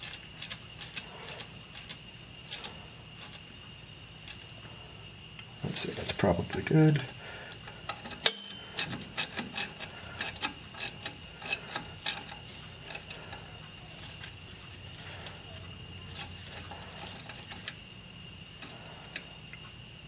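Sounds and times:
hand ratchet clicking: 0.0 - 3.4, 6.5 - 15.4
metallic clink: 8.1 - 9.6.

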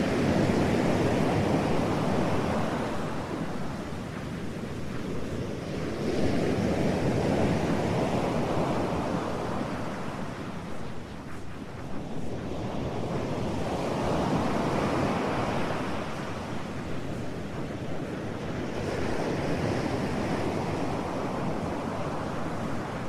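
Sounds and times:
ocean surf rushing: 0.0 - 23.0.

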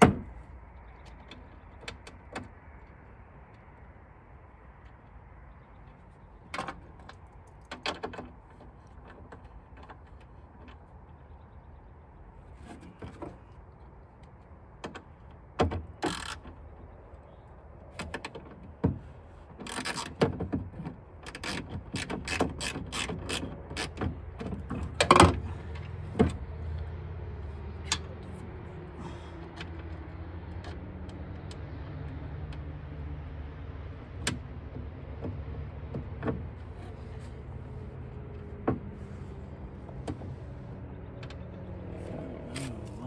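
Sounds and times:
metallic clicks and knocks of tools: 27.8 - 28.3.

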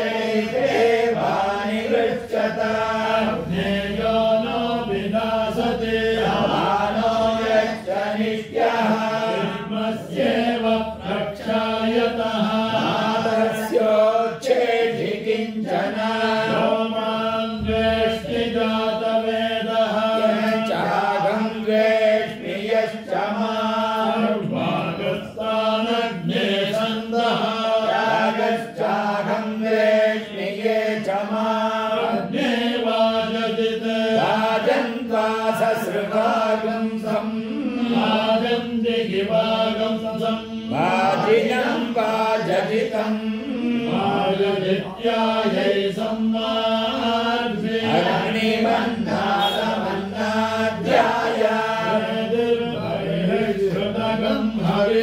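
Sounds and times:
monotone chanting: 0.0 - 55.0.

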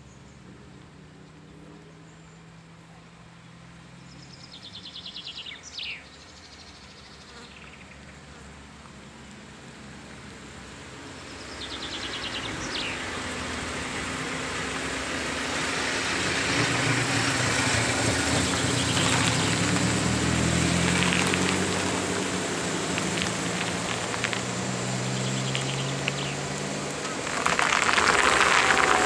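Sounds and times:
engine running at low revs: 8.4 - 29.0
cars rolling past: 9.5 - 29.0.

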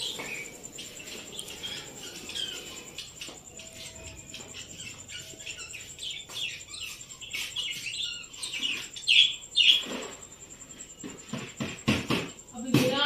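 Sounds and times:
parrots chirping: 0.0 - 10.3.

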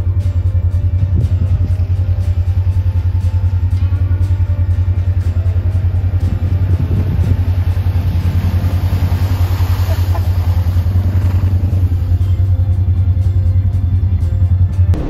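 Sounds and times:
off-road vehicle engines running: 0.0 - 15.0
water splashing: 5.4 - 12.8.

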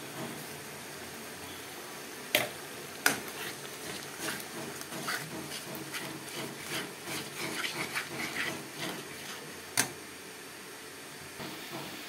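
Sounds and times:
spice paste sizzling: 2.8 - 10.2
spatula scraping pan: 3.1 - 9.9.

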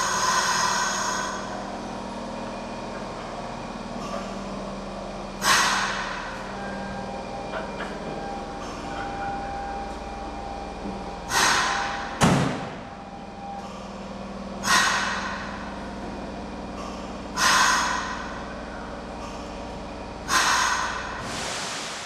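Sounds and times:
train equipment hum: 0.0 - 22.0
compressed air hissing bursts: 5.4 - 6.1, 17.4 - 18.2, 20.3 - 22.0.

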